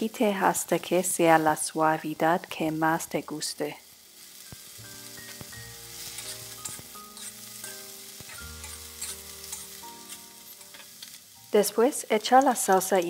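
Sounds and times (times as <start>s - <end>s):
cauliflower sizzling in hot oil: 0.0s - 13.0s
soft background music: 0.7s - 13.0s
metal spatula stirring in wok: 6.0s - 11.1s.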